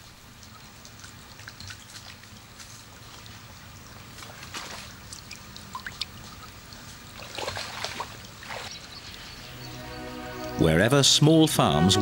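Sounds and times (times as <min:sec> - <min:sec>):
water splashing and sloshing: 0:00.0 - 0:09.3
faint water trickle: 0:00.0 - 0:09.5.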